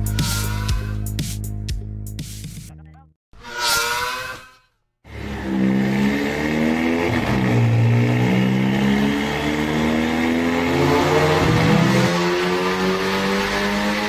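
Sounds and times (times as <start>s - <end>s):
car engine revving hard: 5.1s - 14.0s.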